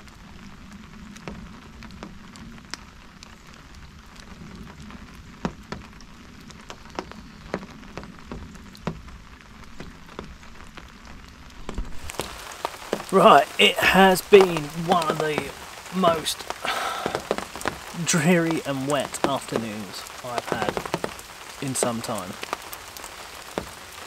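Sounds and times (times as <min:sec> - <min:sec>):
rain falling: 0:00.0 - 0:24.0
drops tapping on umbrella: 0:05.4 - 0:10.8, 0:11.6 - 0:24.0.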